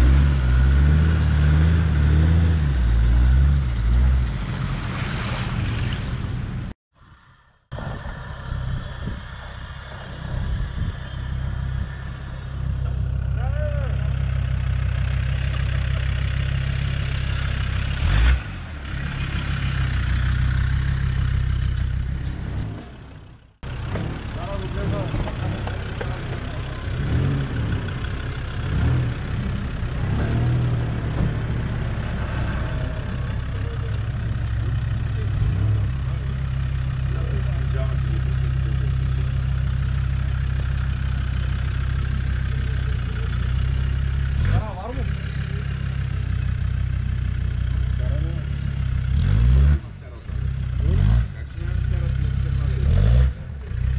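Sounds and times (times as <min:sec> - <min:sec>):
diesel engine running: 0:00.0 - 0:06.7, 0:07.7 - 0:53.9.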